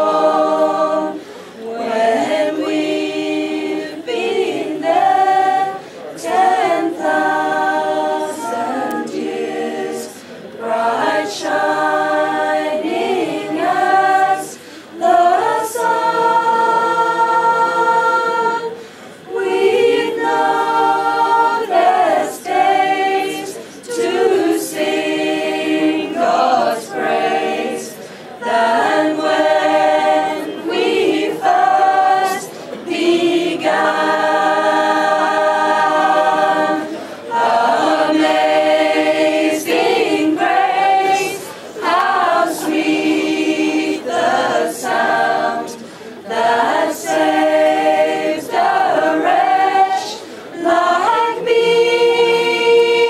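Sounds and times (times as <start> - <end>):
group singing without instruments: 0.0 - 53.0
singers breathing: 1.1 - 1.6, 5.8 - 6.1, 10.1 - 10.6, 14.5 - 15.0, 18.7 - 19.3, 23.6 - 23.8, 28.0 - 28.4, 32.5 - 32.8, 36.8 - 37.3, 41.4 - 41.8, 45.8 - 46.2, 50.2 - 50.6.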